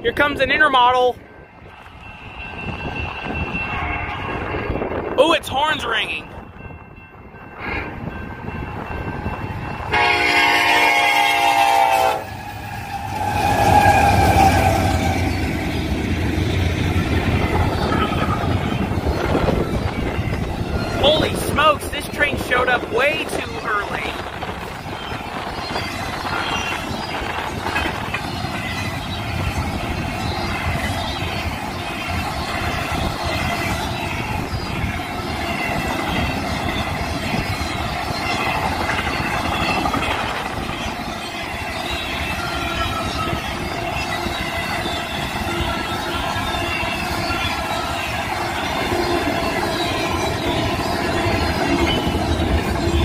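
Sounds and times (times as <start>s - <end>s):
freight train rumbling: 0.0s - 53.0s
train horn: 3.6s - 4.8s, 9.9s - 15.4s.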